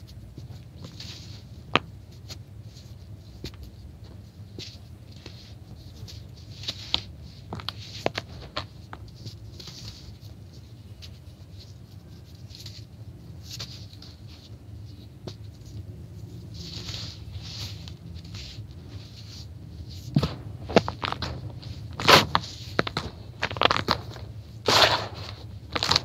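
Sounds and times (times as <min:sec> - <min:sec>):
gritty crumbling by hand: 0:20.0 - 0:26.0.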